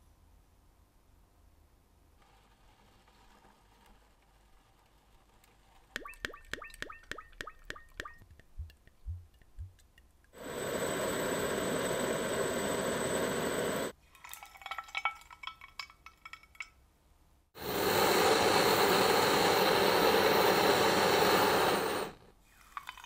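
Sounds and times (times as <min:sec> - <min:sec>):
butane torch hissing: 0:10.4 - 0:14.0, 0:17.6 - 0:22.3
hot metal crackling in liquid: 0:10.4 - 0:16.8.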